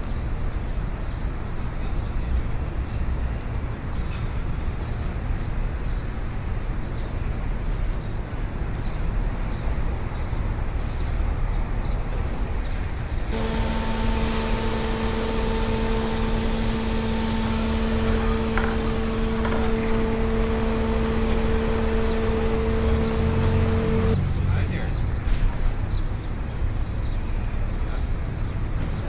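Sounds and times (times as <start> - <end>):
street traffic rumble: 0.0 - 29.0
robot vacuum cleaner humming: 13.3 - 24.2.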